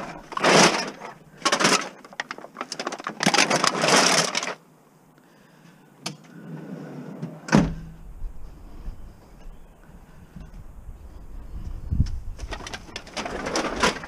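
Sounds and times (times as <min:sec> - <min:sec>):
bag of cans rustling and clattering: 0:00.0 - 0:04.6, 0:12.4 - 0:14.0
sharp thump: 0:07.5 - 0:07.9.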